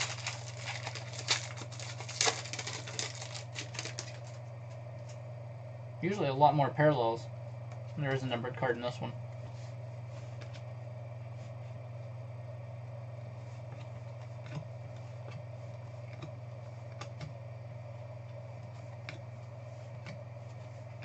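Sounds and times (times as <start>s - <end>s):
cards being flipped: 0.0s - 4.4s
low electrical hum: 0.0s - 21.0s.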